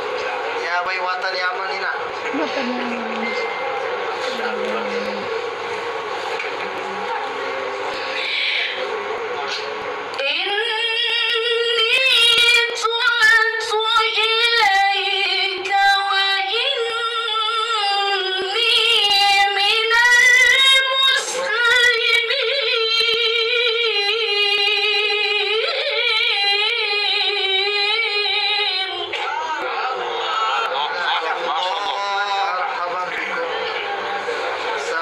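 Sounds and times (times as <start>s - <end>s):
woman chanting melodic recitation: 2.5s - 3.3s, 4.4s - 5.3s.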